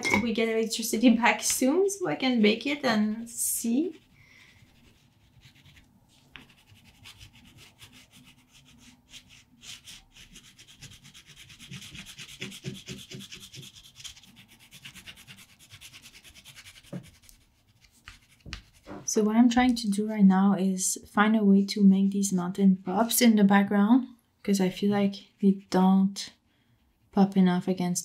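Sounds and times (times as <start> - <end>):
wax pastel rubbing on paper: 3.6 - 19.0.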